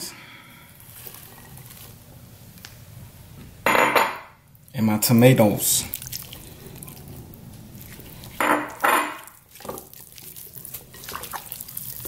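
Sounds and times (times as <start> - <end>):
dishware clattering: 3.7 - 4.3, 8.4 - 9.3
hands squelching meat: 5.5 - 12.0.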